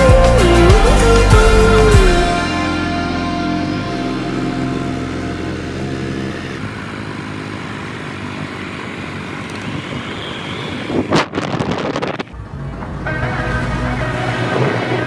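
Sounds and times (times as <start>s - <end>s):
motorbike engine running: 0.0s - 15.0s
wind and road noise: 3.3s - 15.0s.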